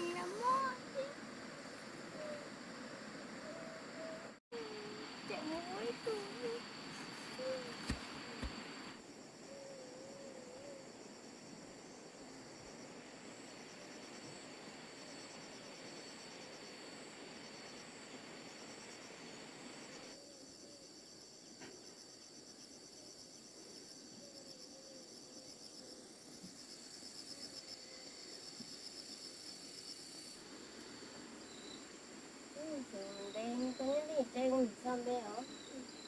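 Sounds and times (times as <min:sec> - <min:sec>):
insects chorus: 0:00.0 - 0:36.0.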